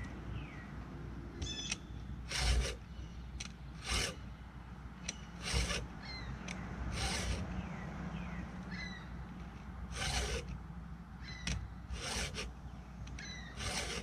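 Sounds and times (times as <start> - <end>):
file rasping on chain teeth: 2.3 - 2.8, 3.8 - 4.2, 5.1 - 5.9, 6.9 - 7.5, 9.9 - 10.6, 11.9 - 12.5, 13.4 - 14.0.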